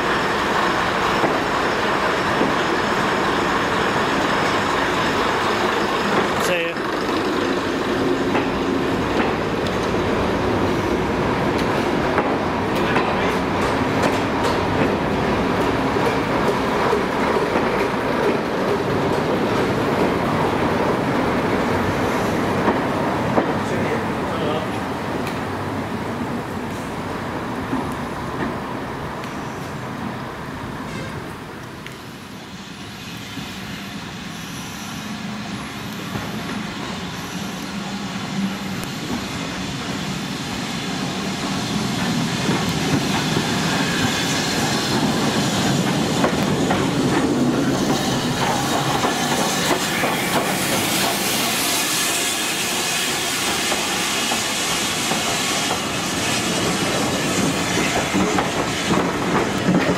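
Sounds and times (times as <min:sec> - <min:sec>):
train wheels clicking over rail joints: 0:00.6 - 0:10.1, 0:11.3 - 0:21.4, 0:41.0 - 0:59.9
steam hissing: 0:32.4 - 0:59.9.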